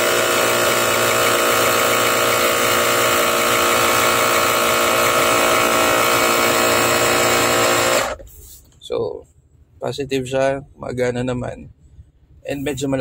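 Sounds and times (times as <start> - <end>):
air compressor running: 0.0 - 8.6.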